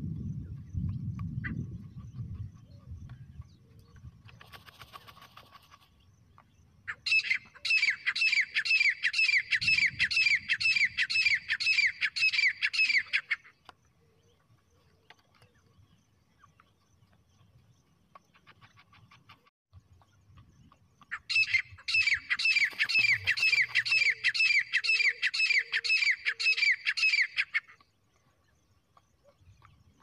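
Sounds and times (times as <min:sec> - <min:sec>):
francolin calling: 0:06.9 - 0:14.4, 0:21.1 - 0:27.8.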